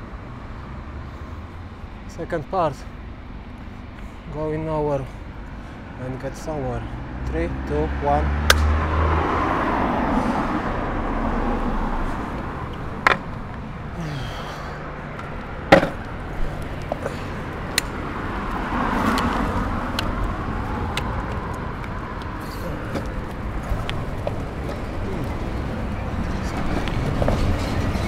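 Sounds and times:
road traffic: 0:00.0 - 0:28.0
sharp clacks: 0:08.4 - 0:08.8
longboard wheels rolling on concrete: 0:08.9 - 0:28.0.

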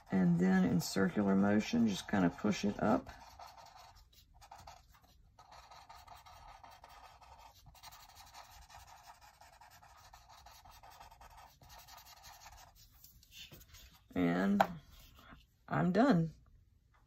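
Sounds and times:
paper stump rubbing on paper: 0:00.0 - 0:14.0.

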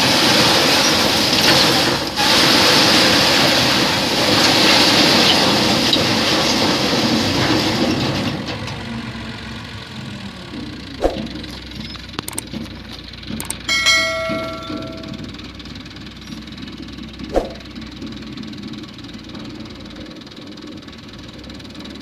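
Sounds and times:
tractor diesel engine running: 0:00.0 - 0:22.0
small clicks: 0:12.1 - 0:12.5, 0:13.4 - 0:13.6
bell ding: 0:13.5 - 0:15.5.

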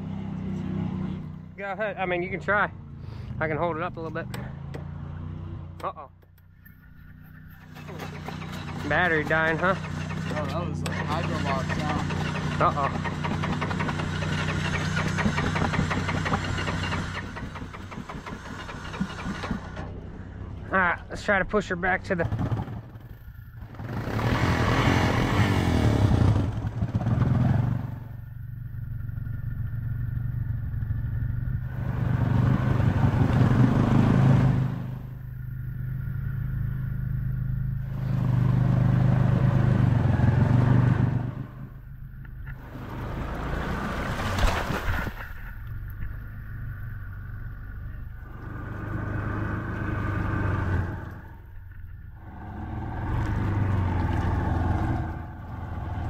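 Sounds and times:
atv engine revving: 0:00.0 - 0:56.0
vehicle wading through water: 0:31.8 - 0:56.0.

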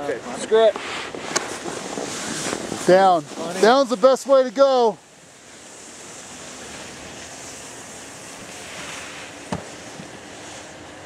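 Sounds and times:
skis sliding on snow: 0:00.3 - 0:11.0
wind rushing over microphone: 0:00.6 - 0:04.1.

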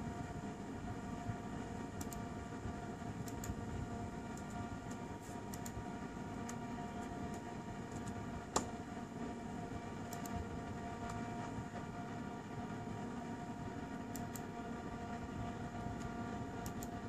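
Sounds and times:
steady machine hum: 0:00.0 - 0:17.0
laptop keys clicking: 0:02.0 - 0:02.2, 0:03.2 - 0:03.6, 0:04.3 - 0:05.8, 0:06.4 - 0:08.7, 0:14.1 - 0:14.5, 0:16.0 - 0:17.0.

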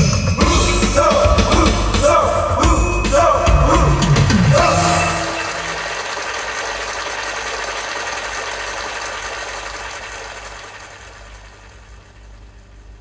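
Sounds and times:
loudspeaker rushing noise: 0:00.8 - 0:07.1
low steady hum: 0:04.6 - 0:13.0.

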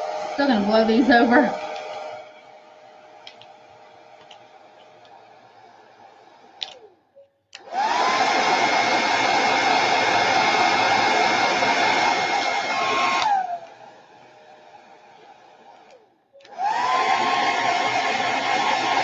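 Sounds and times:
hair dryer blowing: 0:00.0 - 0:06.9, 0:07.6 - 0:19.0
hair dryer switch click: 0:12.4 - 0:13.8.

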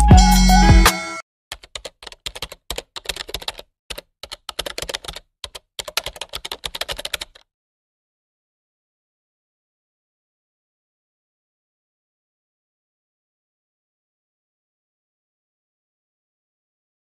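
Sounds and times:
loud intro music: 0:00.0 - 0:01.2.

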